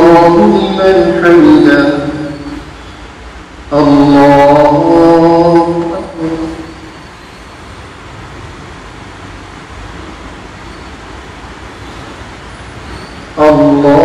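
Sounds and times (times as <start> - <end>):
person chanting: 0.0 - 2.7, 3.7 - 6.9, 13.3 - 14.0.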